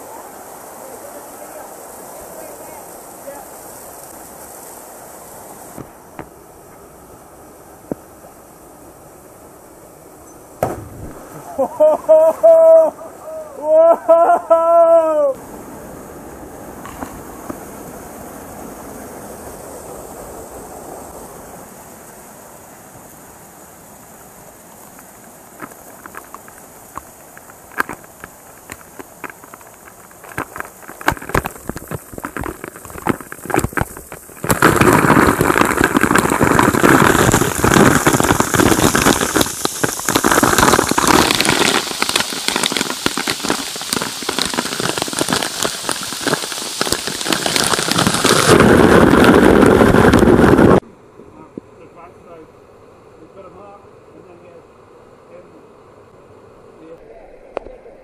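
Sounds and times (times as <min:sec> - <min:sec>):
dense rush of spray: 0:00.0 - 0:50.8
water drops crackling on camera: 0:25.6 - 0:50.4.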